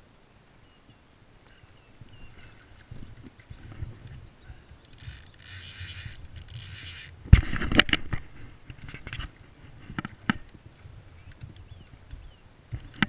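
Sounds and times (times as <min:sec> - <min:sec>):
fishing reel buzzing: 0:04.8 - 0:07.2.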